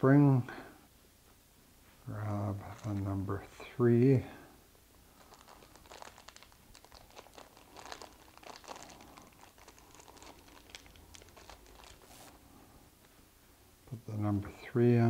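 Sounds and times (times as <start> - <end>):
plastic bag crinkling: 2.6 - 3.1, 5.1 - 12.4.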